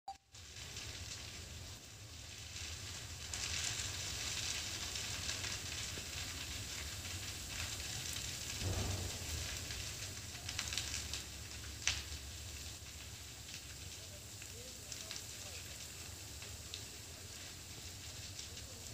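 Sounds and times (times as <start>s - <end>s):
brush fire crackling: 0.2s - 18.9s
sharp pop: 8.6s - 9.8s.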